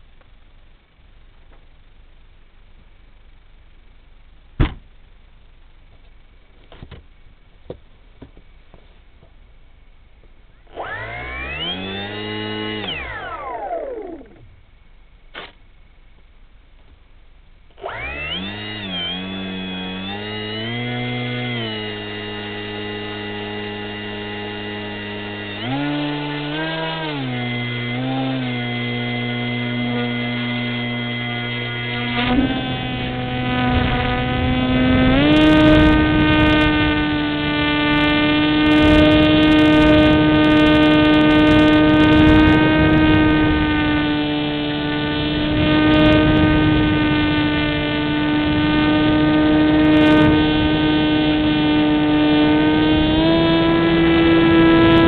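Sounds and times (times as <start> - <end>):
electric motor whine: 10.6 - 14.7, 17.7 - 55.0.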